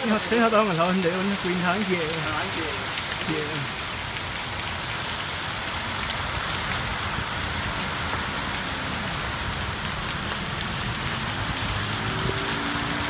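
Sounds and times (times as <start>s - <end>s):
heavy rain pouring: 0.0s - 13.0s
water running off roof: 0.0s - 13.0s.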